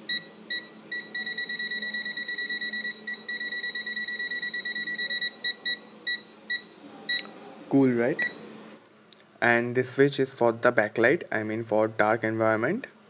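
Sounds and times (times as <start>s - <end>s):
high multimeter beeps: 0.1s - 7.3s, 8.1s - 8.4s.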